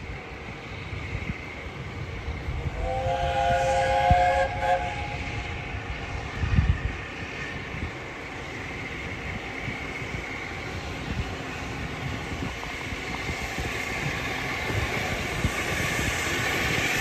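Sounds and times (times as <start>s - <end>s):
low train rumble: 0.0s - 17.0s
steam locomotive chime whistle: 2.8s - 5.6s.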